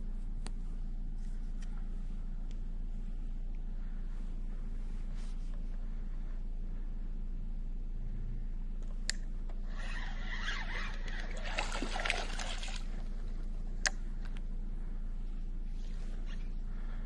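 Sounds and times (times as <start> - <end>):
fish splashing in water: 11.1 - 13.0.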